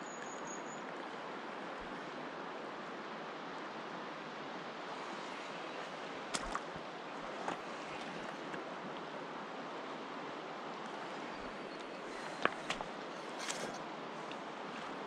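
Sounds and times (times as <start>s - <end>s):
river water rushing: 0.0s - 15.0s.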